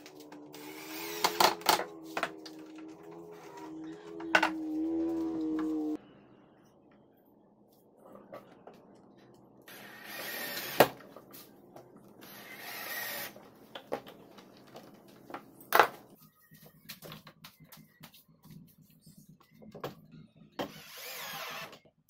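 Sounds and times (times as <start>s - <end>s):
cordless drill driving screws: 9.7s - 10.9s, 20.7s - 21.8s.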